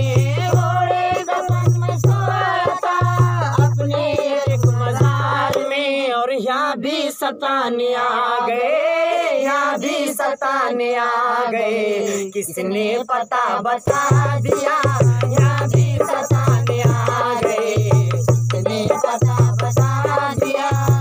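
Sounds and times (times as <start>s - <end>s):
dholak drumming: 0.0s - 5.8s, 13.8s - 21.0s
man singing unaccompanied: 0.0s - 21.0s.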